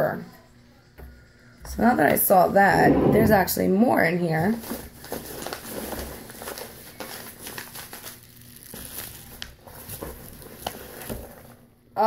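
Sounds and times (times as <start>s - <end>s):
packing material crinkling: 4.5s - 11.7s.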